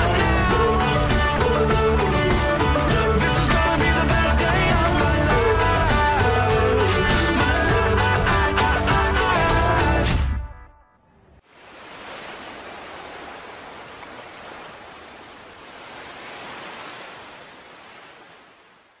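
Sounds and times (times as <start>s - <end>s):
music: 0.0s - 11.1s
surf washing onto beach: 11.4s - 19.0s.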